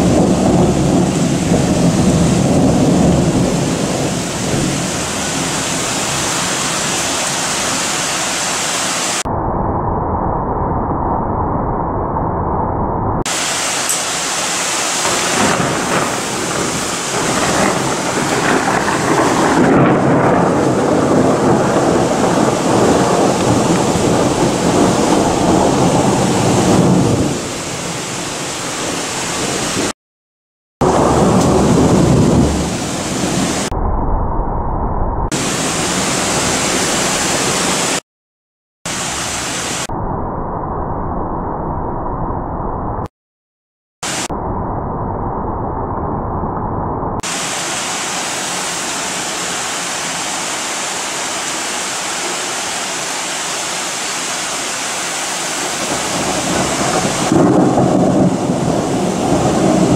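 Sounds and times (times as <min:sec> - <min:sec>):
rolling thunder: 0:00.0 - 0:07.6, 0:09.4 - 0:29.9, 0:30.8 - 0:37.8, 0:55.8 - 0:59.9
heavy rain hissing: 0:00.0 - 0:09.3, 0:13.3 - 0:30.0, 0:35.4 - 0:38.0, 0:38.9 - 0:39.9, 0:44.0 - 0:44.3, 0:47.2 - 0:59.9.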